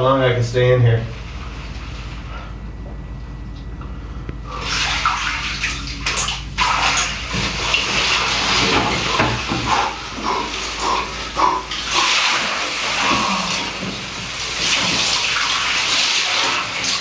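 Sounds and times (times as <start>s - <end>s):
water sloshing and splashing: 4.5s - 17.0s.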